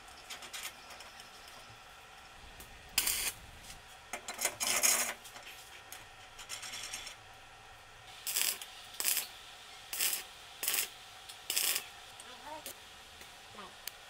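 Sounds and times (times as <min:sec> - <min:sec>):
steel scraping against steel: 0:04.3 - 0:05.7, 0:06.3 - 0:07.2.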